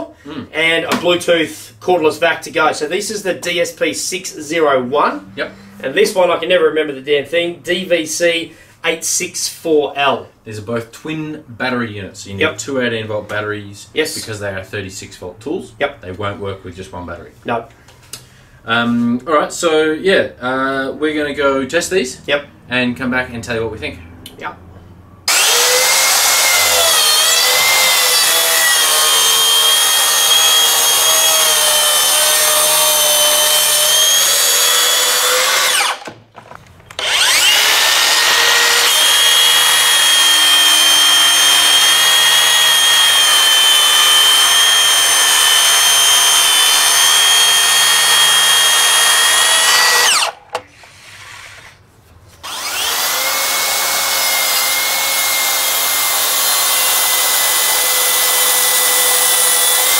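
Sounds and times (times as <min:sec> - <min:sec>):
track saw cutting wood: 0:25.3 - 0:36.1, 0:36.9 - 0:50.4, 0:52.4 - 0:59.9.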